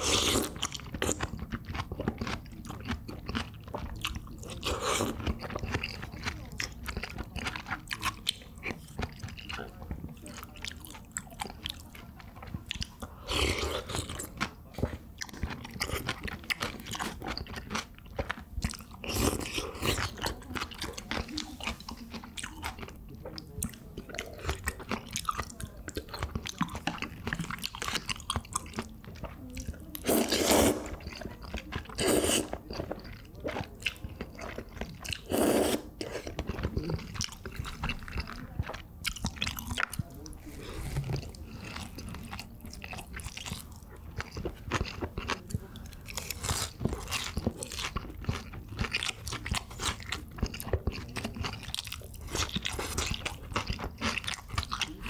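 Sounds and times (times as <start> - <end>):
slurping noodles and soup: 0.0 - 1.2, 30.0 - 31.2, 31.8 - 33.6, 34.4 - 36.5
chewing: 0.0 - 55.0.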